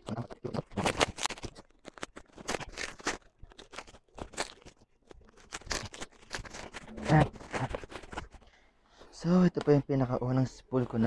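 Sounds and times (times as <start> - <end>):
bubble wrap crinkling and tearing: 0.0 - 8.4.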